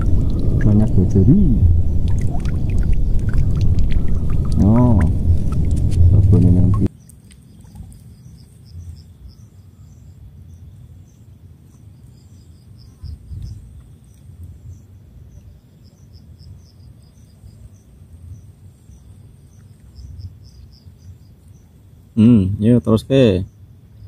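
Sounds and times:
low rumble: 0.0s - 6.9s
insects chirping: 0.0s - 24.0s.

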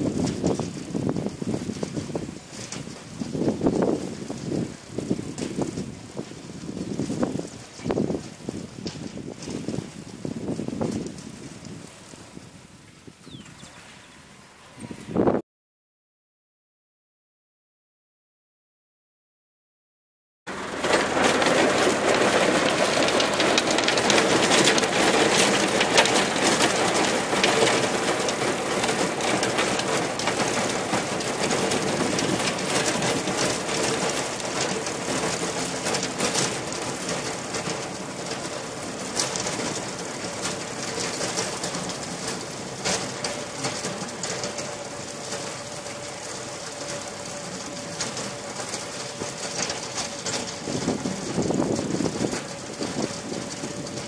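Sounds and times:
soil clattering against tiller: 20.5s - 54.0s
tractor engine and drive whine: 20.5s - 54.0s.

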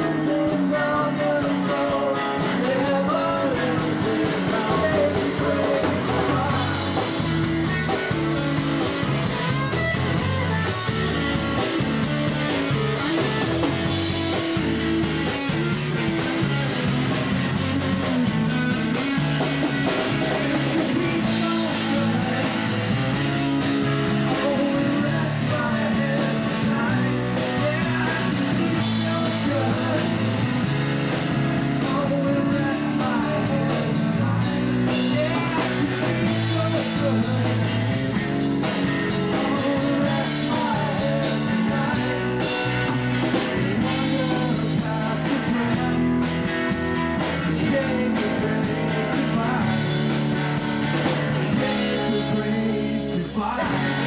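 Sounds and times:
person singing: 0.0s - 7.1s, 19.6s - 30.5s, 31.6s - 38.0s, 39.0s - 46.4s, 47.2s - 50.4s, 51.3s - 54.0s
rock band playing: 0.0s - 54.0s.

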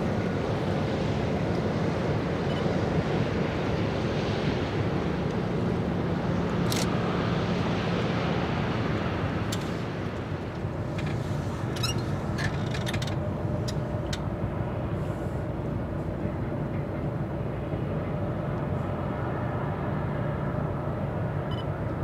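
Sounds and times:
ship engines droning: 0.0s - 22.0s.

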